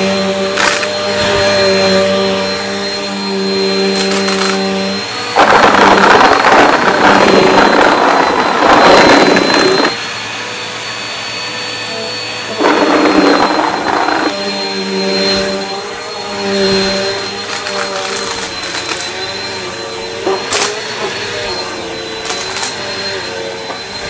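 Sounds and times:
vacuum motor whine: 0.0s - 24.0s
debris rattling into vacuum: 5.3s - 10.0s.

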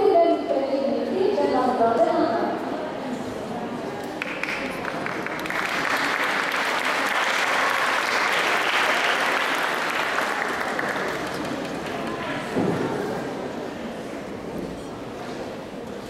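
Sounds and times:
audience applauding: 4.2s - 12.5s.

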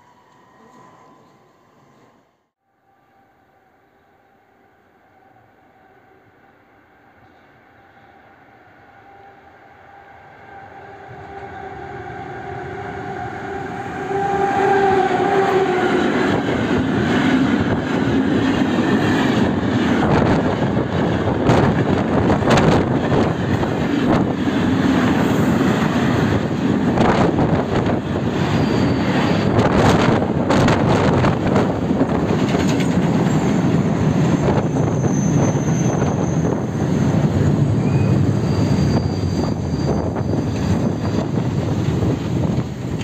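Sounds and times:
electric locomotive hum: 0.0s - 43.0s.

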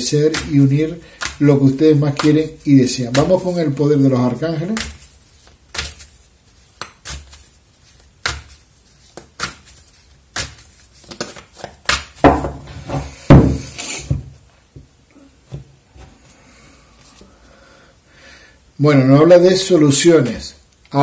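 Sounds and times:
cards rustling: 0.1s - 12.2s
cards slapping and knocking: 0.2s - 14.3s.

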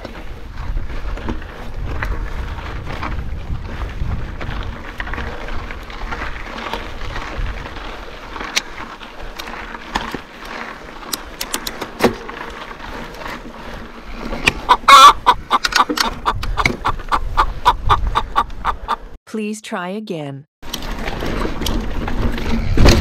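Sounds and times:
bike rattling over rocks: 0.0s - 18.1s, 20.6s - 23.0s.

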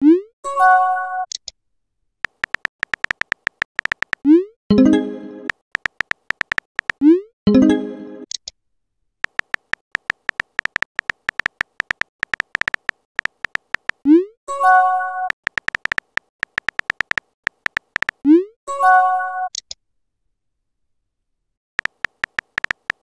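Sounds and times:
keyboard tap clicks: 2.2s - 4.2s, 5.5s - 7.0s, 9.2s - 14.0s, 15.4s - 18.2s, 21.8s - 23.0s.

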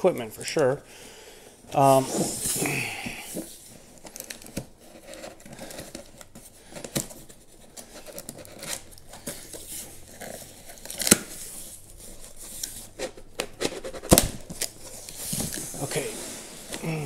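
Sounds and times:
cardboard scraping and rustling: 1.8s - 17.0s
packing tape being torn: 4.0s - 15.6s.

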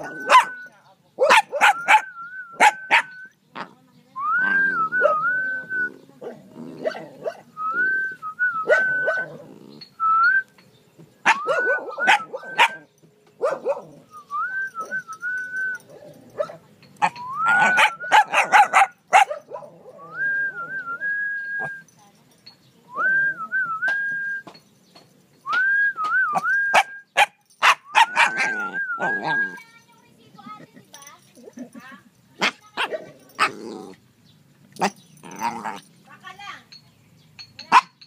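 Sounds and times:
dog barking: 0.2s - 0.6s, 1.2s - 3.2s, 6.2s - 7.5s, 8.7s - 9.4s, 11.2s - 12.8s, 13.4s - 14.0s, 16.3s - 16.6s, 17.6s - 19.8s, 26.8s - 28.6s, 32.4s - 33.5s, 37.7s - 38.0s
person whistling a warbling call: 27.9s - 29.6s.

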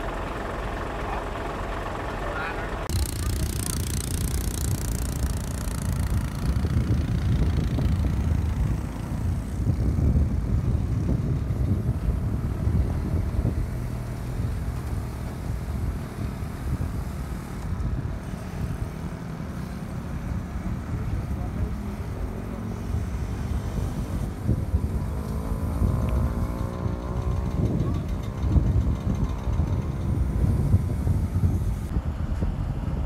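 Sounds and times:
crane diesel engines running: 0.0s - 33.0s.

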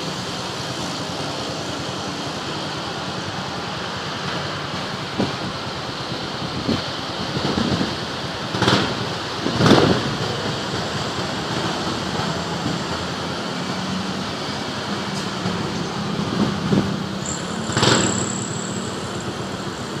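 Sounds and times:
city road traffic: 0.0s - 20.0s
thin high steady tone: 17.2s - 20.0s.

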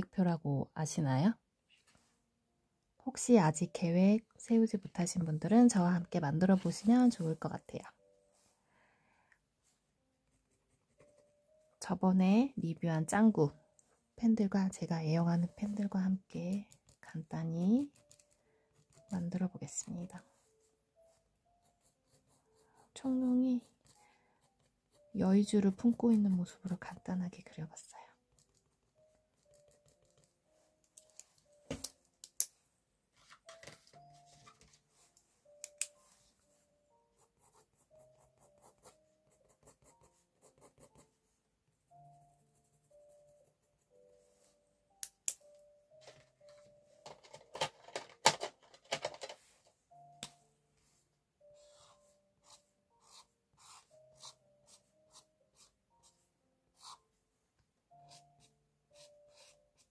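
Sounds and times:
soft music with mallet notes: 0.0s - 59.9s
pens clicking and tapping: 16.5s - 17.1s, 17.8s - 19.1s, 29.4s - 32.5s, 47.0s - 49.4s
marker scratching on paper: 51.6s - 56.2s, 56.8s - 57.0s, 59.0s - 59.9s.

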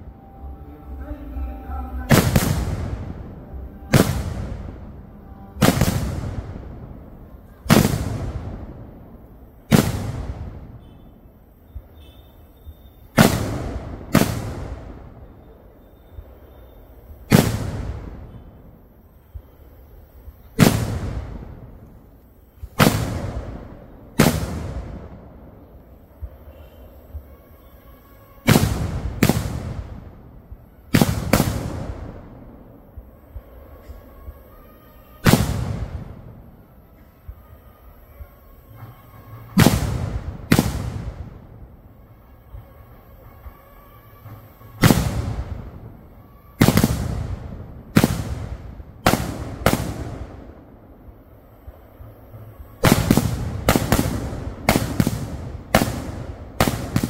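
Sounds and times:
rumbling echo: 0.0s - 11.2s
fireworks blasts: 0.0s - 57.0s.

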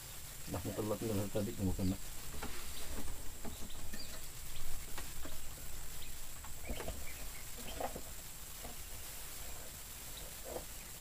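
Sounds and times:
faint high bird chirps: 2.6s - 8.1s.

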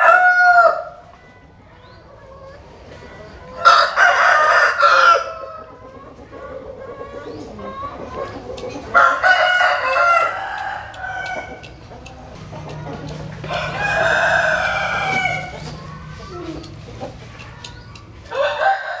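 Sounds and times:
rooster crowing: 0.0s - 1.0s, 3.6s - 5.7s, 8.9s - 11.7s, 13.4s - 15.6s, 18.3s - 19.0s.

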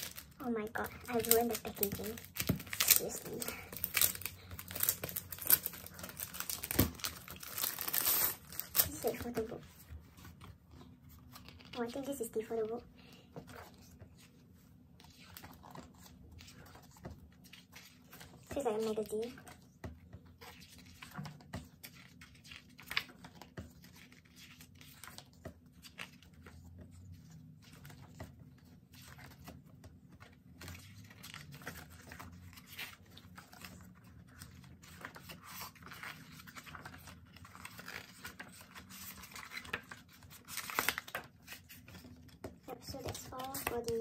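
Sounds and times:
book pages turning: 0.0s - 44.0s.

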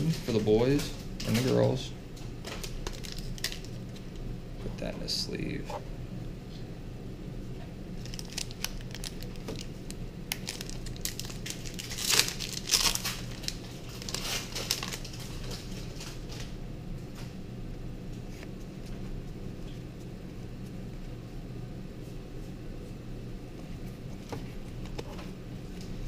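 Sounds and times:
foil wrappers crinkling: 2.4s - 4.2s, 8.0s - 16.6s.

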